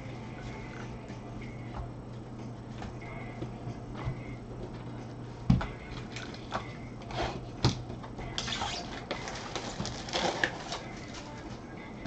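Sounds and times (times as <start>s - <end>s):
plastic wrapping crinkling: 8.4s - 11.3s.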